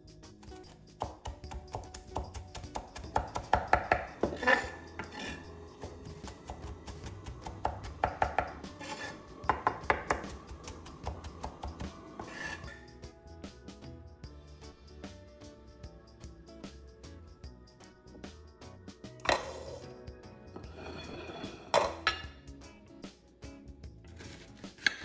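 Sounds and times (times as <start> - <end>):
knife chopping on wooden board: 1.0 - 12.6.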